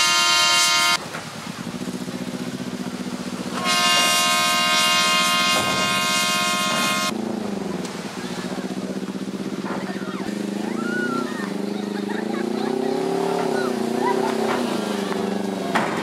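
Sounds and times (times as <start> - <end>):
horn blasts: 0.0 - 1.0, 3.5 - 7.2
engine running: 0.0 - 16.0.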